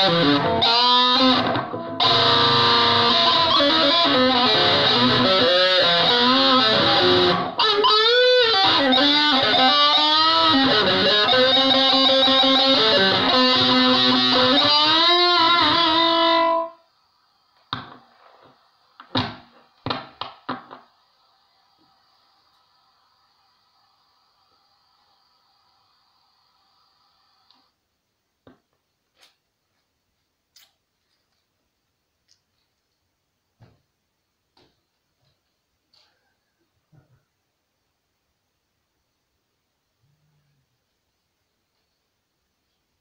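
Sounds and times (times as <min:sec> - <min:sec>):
distorted electric guitar: 0:00.0 - 0:16.9.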